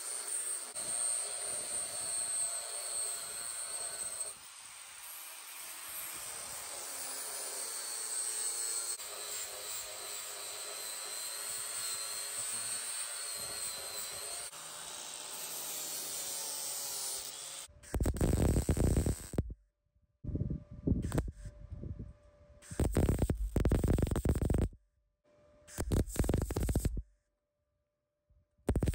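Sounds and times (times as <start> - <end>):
angle grinder grinding steel: 0.0 - 19.4.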